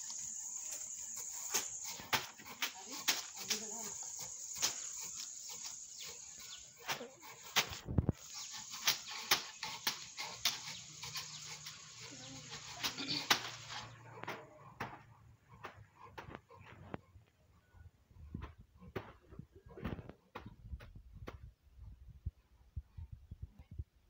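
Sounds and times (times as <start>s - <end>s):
high insect drone: 0.0s - 7.6s, 8.2s - 14.0s
fibre swishing through combs: 6.4s - 14.5s.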